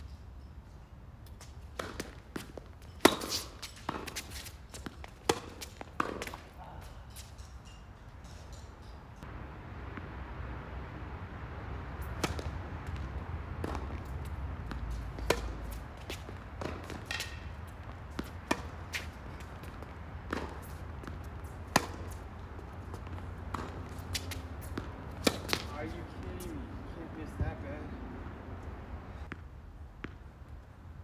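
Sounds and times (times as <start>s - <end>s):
tennis ball bouncing: 1.3s - 7.8s, 8.5s - 30.3s
racket strings striking ball: 12.0s - 22.2s, 22.9s - 25.7s.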